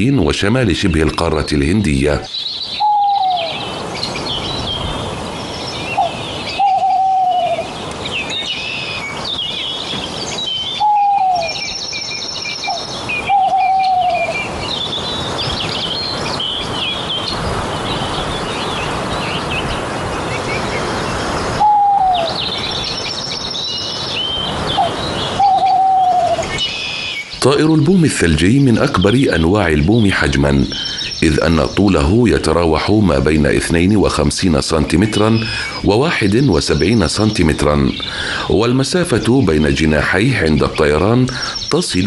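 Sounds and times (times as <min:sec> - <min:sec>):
small birds chirping: 0:00.0 - 0:42.0
soft background hiss: 0:00.0 - 0:42.0
short falling bird call: 0:21.6 - 0:22.5.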